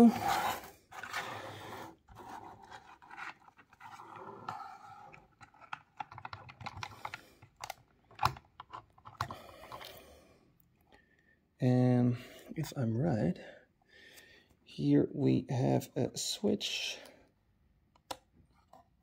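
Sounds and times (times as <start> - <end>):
plastic clicks taps and scrapes: 2.8 - 9.9.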